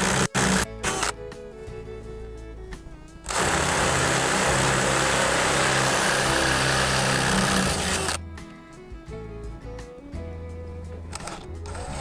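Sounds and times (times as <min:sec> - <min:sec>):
power drill boring through metal: 0:00.0 - 0:01.1, 0:03.3 - 0:08.2.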